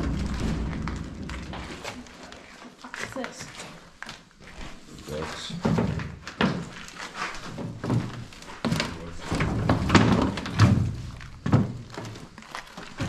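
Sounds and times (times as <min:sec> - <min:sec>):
heavy knocks: 0:00.0 - 0:02.3
footsteps on wooden boards: 0:00.0 - 0:13.0.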